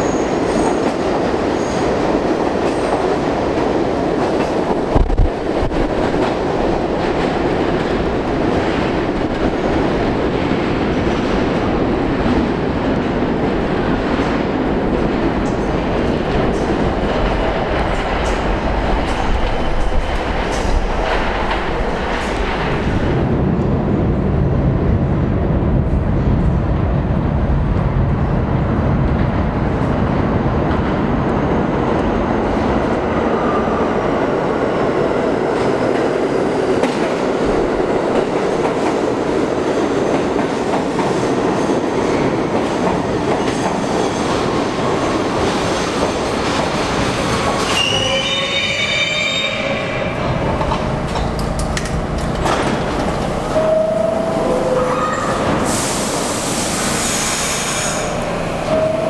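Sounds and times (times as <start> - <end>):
subway train wheels rumbling: 0.0 - 59.0
wheel and brake squeal: 47.7 - 50.2.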